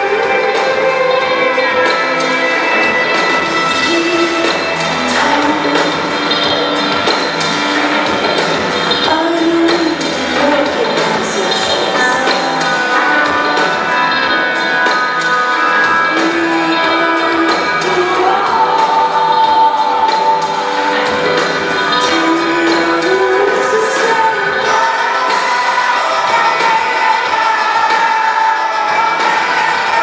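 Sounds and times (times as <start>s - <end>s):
woman singing: 0.0s - 6.4s, 7.7s - 14.6s, 15.6s - 30.0s
synth and guitar tones: 0.0s - 30.0s
drum beat: 18.1s - 30.0s.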